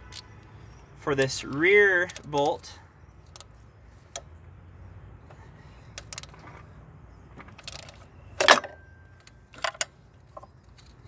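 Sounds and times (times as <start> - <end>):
metallic clicks of wrench on bolt: 1.1 - 3.5.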